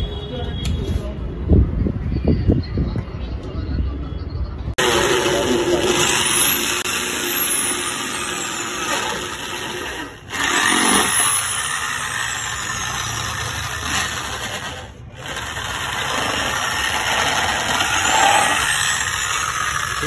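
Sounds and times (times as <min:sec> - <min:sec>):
electric drill boring plastic: 0:04.8 - 0:20.0.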